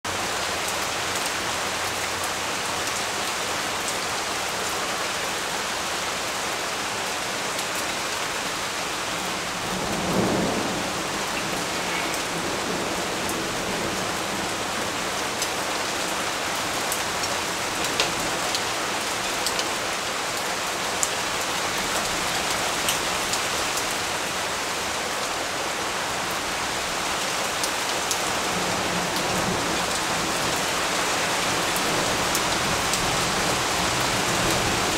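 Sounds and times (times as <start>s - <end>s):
rain falling on leaves: 0.0s - 34.9s
low thunder rumble: 9.2s - 15.2s.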